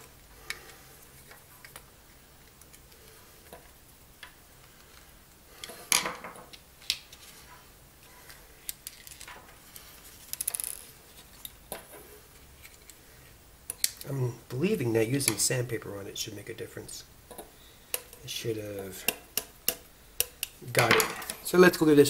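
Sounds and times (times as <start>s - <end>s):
rattle of small clicks: 10.3s - 11.5s.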